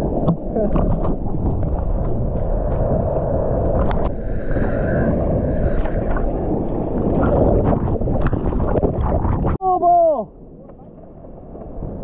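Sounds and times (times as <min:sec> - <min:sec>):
seawater sloshing and splashing: 0:00.0 - 0:09.6.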